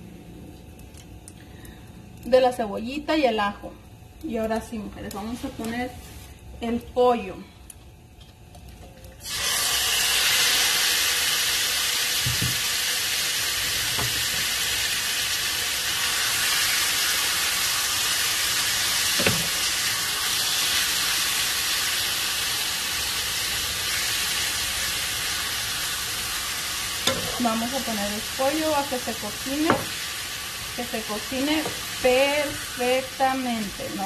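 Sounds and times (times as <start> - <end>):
chicken sizzling in oil: 9.2 - 34.0.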